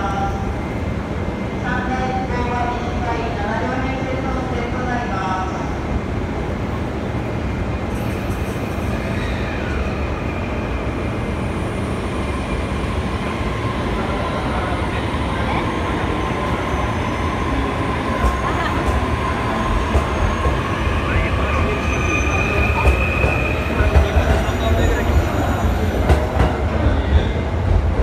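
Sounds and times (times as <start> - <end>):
train whine: 5.7 - 28.0.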